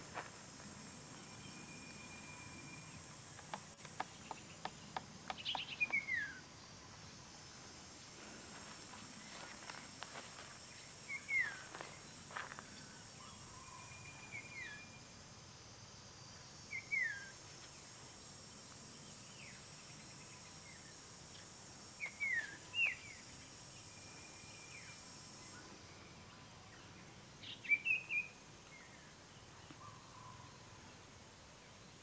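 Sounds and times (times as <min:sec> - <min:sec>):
high-pitched insect drone: 0:00.1 - 0:03.6, 0:18.0 - 0:26.2
birds whistling downward notes: 0:05.4 - 0:06.4, 0:16.7 - 0:17.3.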